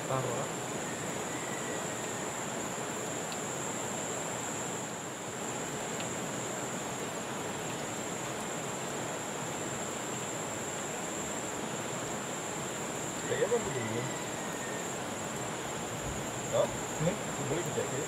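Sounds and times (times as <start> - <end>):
high-pitched insect drone: 12.8 - 18.0.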